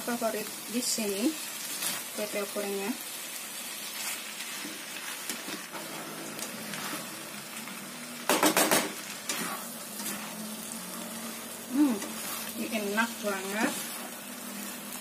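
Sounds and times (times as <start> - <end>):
noodles sizzling in a pan: 0.0 - 15.0
spatula scraping a pan: 9.2 - 11.1, 11.9 - 14.9.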